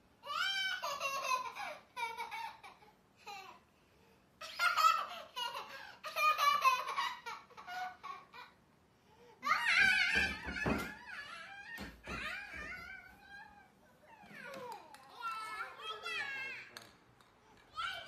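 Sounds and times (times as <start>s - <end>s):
toddler shrieking: 9.4s - 14.5s.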